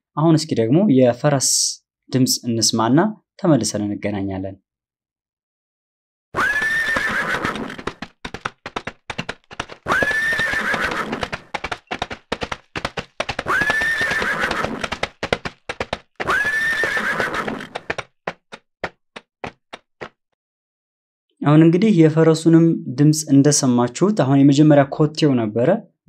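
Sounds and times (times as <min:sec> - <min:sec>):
horse neighing: 0:06.4 - 0:08.2, 0:09.8 - 0:12.1, 0:13.3 - 0:15.4, 0:16.2 - 0:18.0
hoofbeats clattering: 0:06.5 - 0:20.1.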